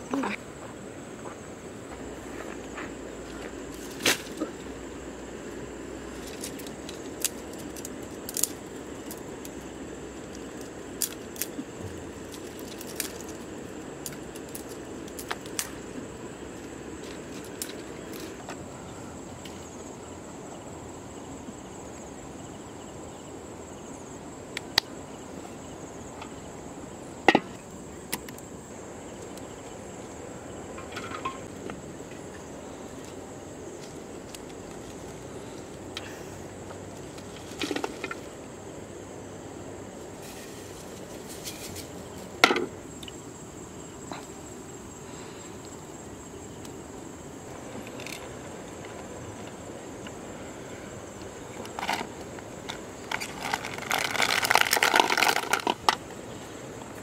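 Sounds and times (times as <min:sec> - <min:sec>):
insects chirring: 0:00.0 - 0:57.0
dry sticks snapping: 0:06.2 - 0:15.8.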